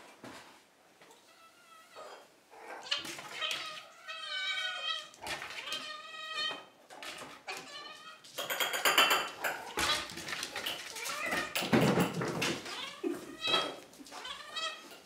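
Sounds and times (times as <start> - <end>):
cats meowing loudly: 1.3 - 8.3, 9.6 - 11.8, 12.4 - 15.0.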